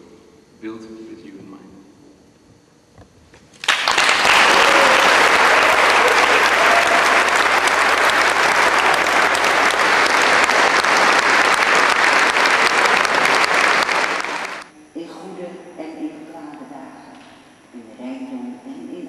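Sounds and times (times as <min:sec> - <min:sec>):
people applauding: 0:03.6 - 0:14.7.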